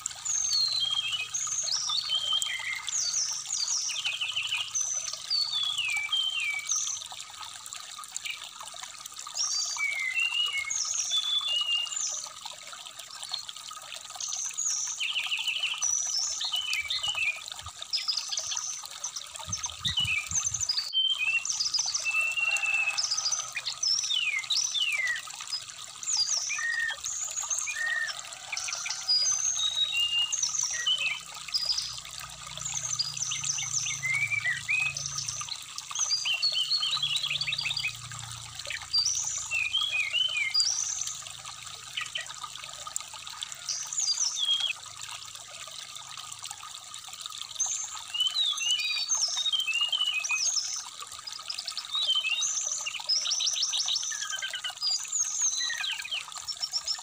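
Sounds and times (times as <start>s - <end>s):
stream trickling: 0.0s - 57.0s
bird chirps whistles and trills: 19.5s - 22.9s, 26.2s - 28.2s, 51.8s - 57.0s.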